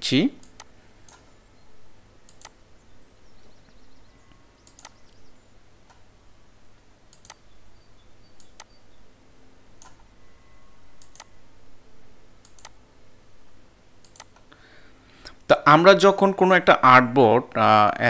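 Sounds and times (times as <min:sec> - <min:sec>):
low steady hum: 0:00.0 - 0:18.0
computer mouse clicking: 0:00.4 - 0:01.3, 0:02.2 - 0:02.6, 0:04.6 - 0:06.0, 0:07.1 - 0:07.4, 0:08.3 - 0:08.8, 0:09.8 - 0:10.1, 0:11.0 - 0:11.4, 0:12.4 - 0:12.8, 0:14.0 - 0:14.5.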